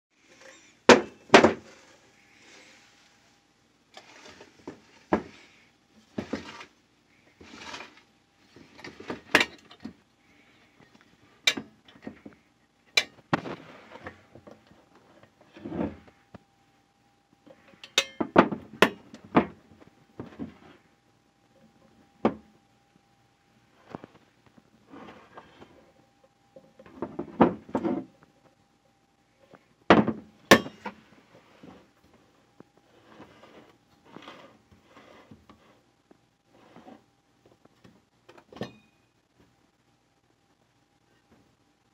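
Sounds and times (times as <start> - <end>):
scraping and rustling: 0.2 - 16.4, 23.7 - 26.0, 30.5 - 37.8.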